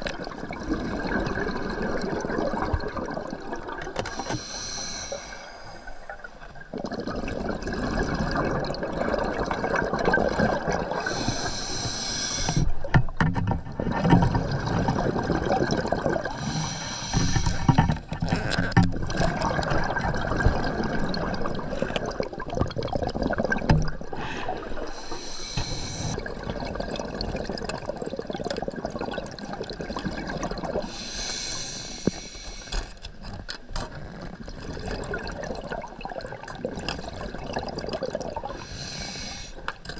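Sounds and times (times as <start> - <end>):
underwater bubbling: 0.0 - 39.9
regulator breathing hiss: 4.1 - 5.9, 11.0 - 12.7, 16.3 - 17.8, 24.2 - 26.2, 30.9 - 32.8, 38.6 - 39.6.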